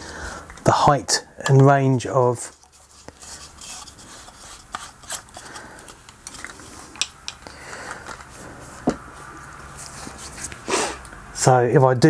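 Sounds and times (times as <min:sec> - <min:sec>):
selfie stick sections sliding: 0:02.5 - 0:08.9.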